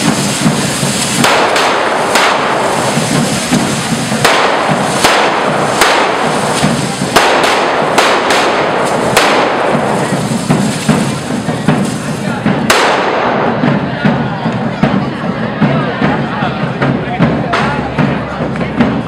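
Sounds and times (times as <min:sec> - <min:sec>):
fire fountains hissing: 0:00.0 - 0:14.3
firecracker bangs: 0:00.0 - 0:19.0.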